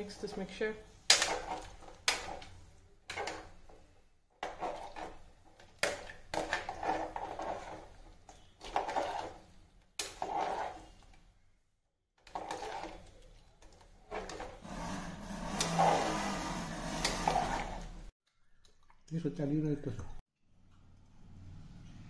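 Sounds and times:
metal ladle scraping a pot: 0:03.1 - 0:03.6, 0:04.4 - 0:05.3, 0:06.3 - 0:11.0, 0:12.2 - 0:13.2, 0:14.1 - 0:18.1.

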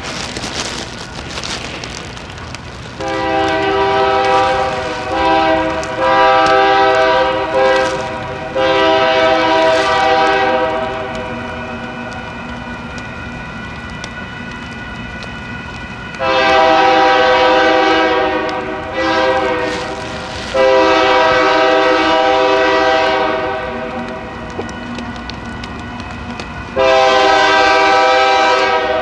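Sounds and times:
approaching train: 0:00.0 - 0:29.0
locomotive air horn: 0:03.0 - 0:11.4, 0:16.2 - 0:24.1, 0:26.8 - 0:29.0.

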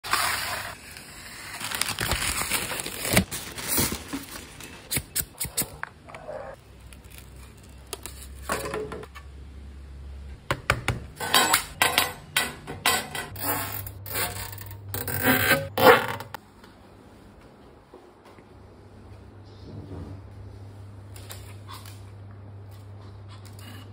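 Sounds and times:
plastic and paper packaging rustling: 0:00.1 - 0:04.9.

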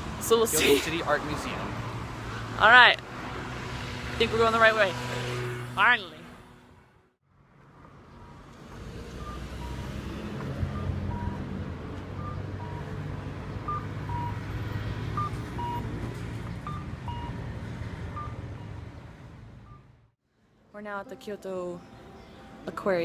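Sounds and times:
road traffic rumble: 0:00.0 - 0:23.0.

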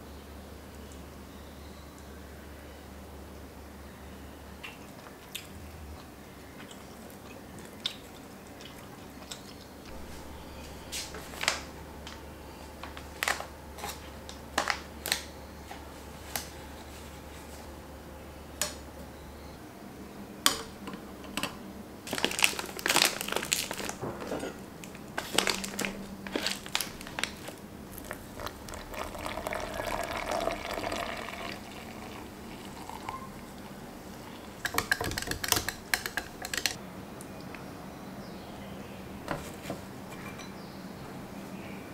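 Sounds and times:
foil bag crinkling: 0:09.9 - 0:15.3, 0:22.0 - 0:31.0
water pouring into glass: 0:28.0 - 0:33.6.

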